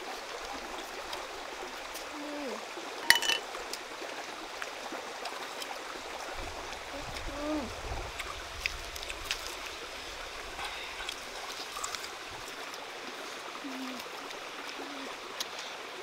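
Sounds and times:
stream water rushing: 0:00.0 - 0:16.0
crunchy vegetable being chewed: 0:11.0 - 0:12.6.

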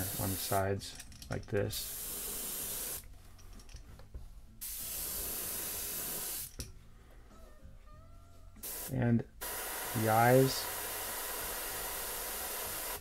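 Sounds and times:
airbrush spraying hiss: 0:00.0 - 0:00.7, 0:01.7 - 0:03.0, 0:04.6 - 0:06.6, 0:08.6 - 0:13.0.

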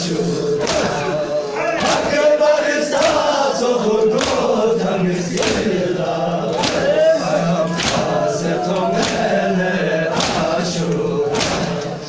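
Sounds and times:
men chanting in chorus: 0:00.0 - 0:12.0
chest slapping in unison: 0:00.6 - 0:01.1, 0:02.9 - 0:03.3, 0:04.1 - 0:04.6, 0:05.3 - 0:05.8, 0:06.5 - 0:06.9, 0:07.7 - 0:09.4, 0:10.1 - 0:12.0.

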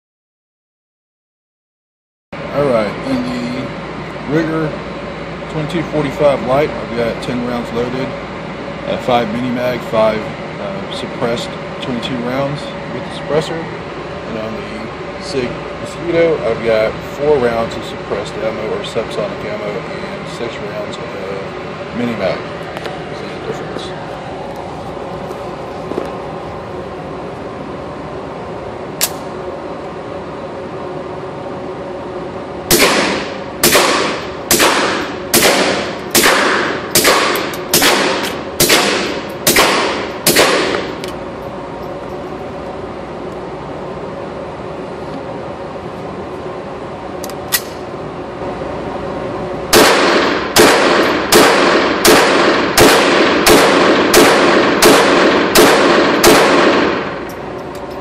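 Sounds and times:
ventilation hum: 0:02.3 - 0:58.0
suppressed pistol shots: 0:32.7 - 0:41.0, 0:49.7 - 0:57.2.

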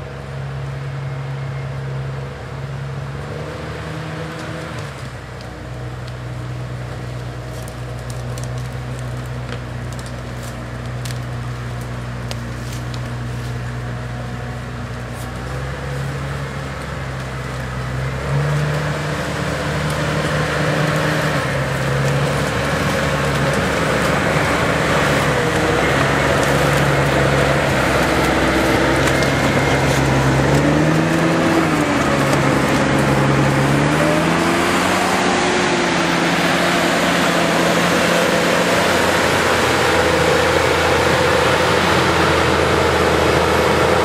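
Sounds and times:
diesel engine running: 0:00.0 - 0:44.0
tracks driving through mud: 0:01.9 - 0:44.0.

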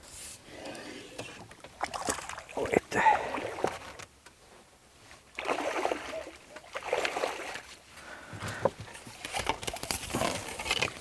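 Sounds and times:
water splashing and sloshing: 0:00.6 - 0:04.3, 0:05.0 - 0:11.0
water streaming off net: 0:05.4 - 0:07.7.

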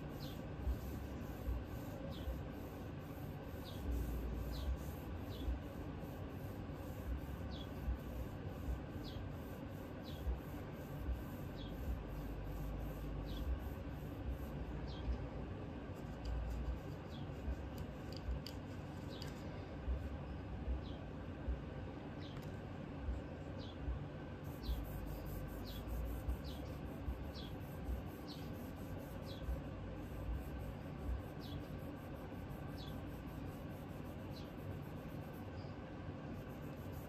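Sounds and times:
pad rubbing on steel: 0:00.0 - 0:15.1, 0:24.5 - 0:35.6, 0:36.2 - 0:37.0.

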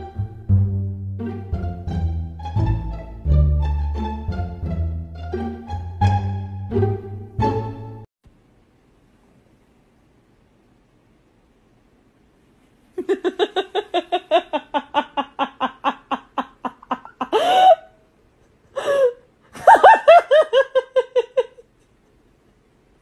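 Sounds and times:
person laughing hard: 0:13.0 - 0:18.0, 0:18.8 - 0:21.7.

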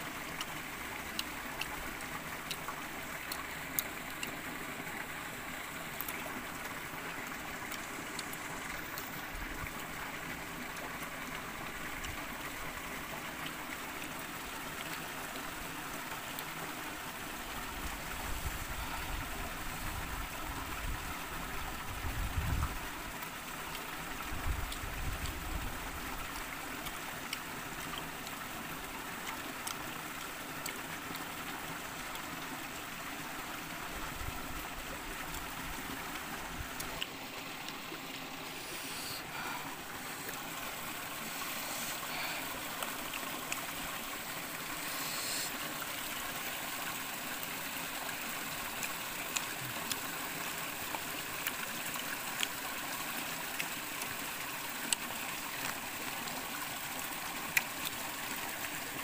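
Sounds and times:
stream flowing over rocks: 0:00.0 - 0:59.0.

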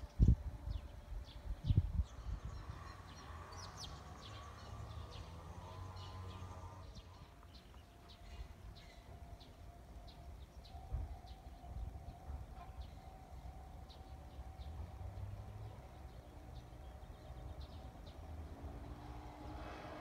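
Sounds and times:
faint steady tone: 0:06.5 - 0:18.0.

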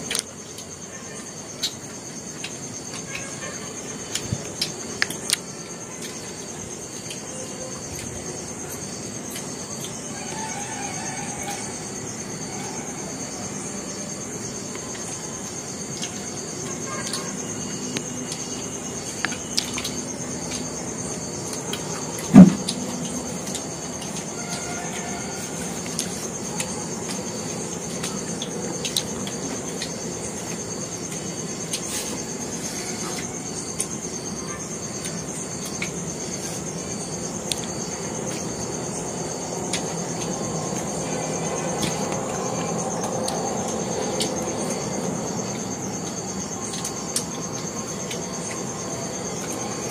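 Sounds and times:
clicks from people eating: 0:00.0 - 0:00.8, 0:01.5 - 0:10.1, 0:14.7 - 0:25.0, 0:25.6 - 0:32.3, 0:34.9 - 0:36.6, 0:45.4 - 0:49.9
constant high whine: 0:00.0 - 0:49.9
cricket trilling: 0:00.0 - 0:49.9.

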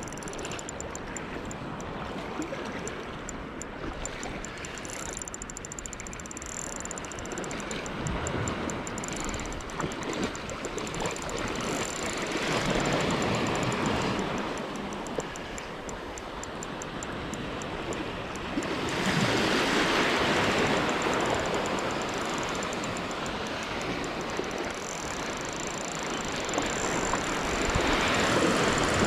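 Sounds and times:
fishing reel ticking: 0:00.0 - 0:29.0
small waves washing ashore: 0:07.4 - 0:29.0.

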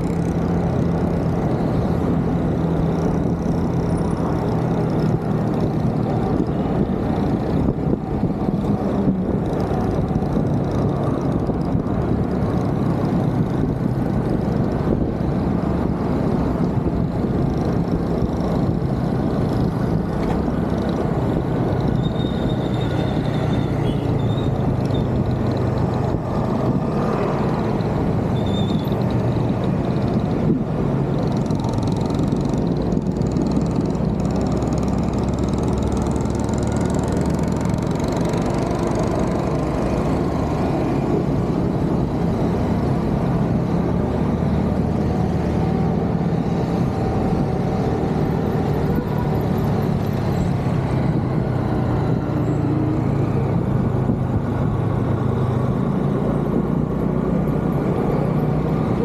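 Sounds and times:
motorbike and car traffic: 0:00.0 - 0:59.0
road noise: 0:00.0 - 0:59.0
scooter engine running: 0:31.2 - 0:40.6.

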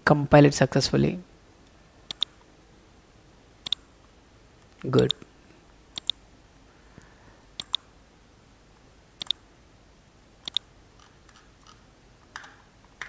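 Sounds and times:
computer mouse clicking: 0:02.1 - 0:02.3, 0:06.0 - 0:06.2, 0:07.6 - 0:07.8, 0:09.2 - 0:09.4, 0:10.4 - 0:11.8.

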